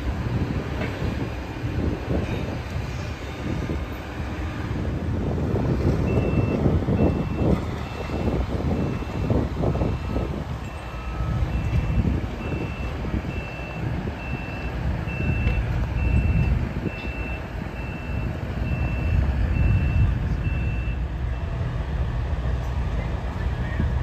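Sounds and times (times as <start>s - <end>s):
low engine rumble: 0.0s - 24.0s
reversing alarm beeping: 6.0s - 21.6s.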